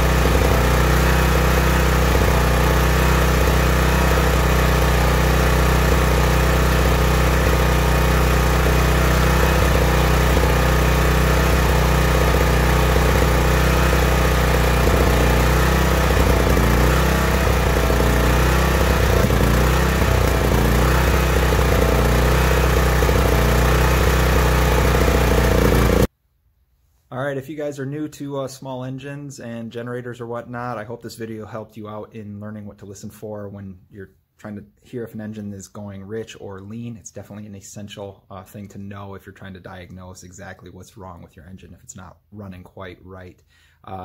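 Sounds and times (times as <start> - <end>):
small generator engine running: 0.0 - 26.1.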